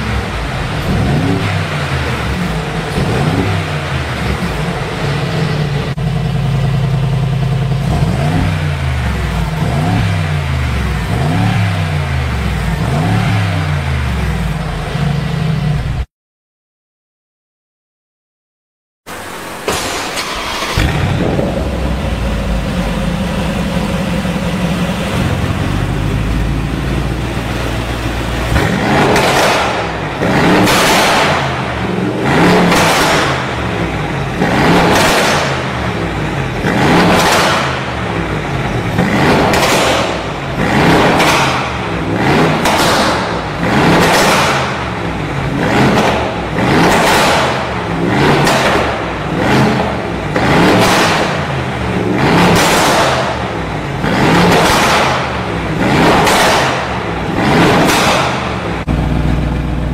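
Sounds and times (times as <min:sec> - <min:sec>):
engine revving in throttle blips: 0:00.0 - 0:16.0, 0:19.7 - 0:59.9
engine fast idle: 0:19.7 - 0:28.5.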